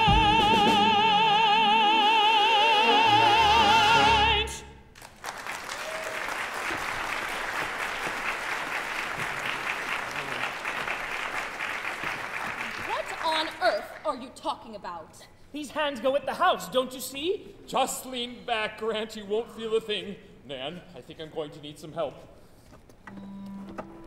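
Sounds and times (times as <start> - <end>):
orchestra playing: 0.0 - 4.7
audience applauding: 5.0 - 14.0.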